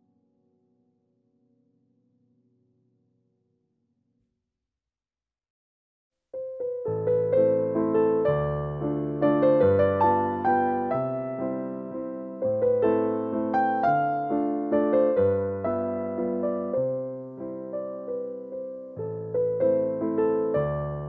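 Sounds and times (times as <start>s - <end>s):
slow gentle piano music: 6.4s - 21.0s.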